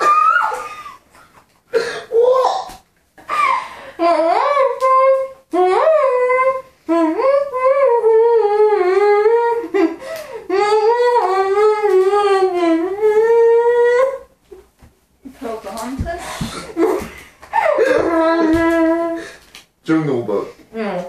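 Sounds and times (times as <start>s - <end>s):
woman humming a melody: 4.0s - 9.9s, 10.5s - 14.3s.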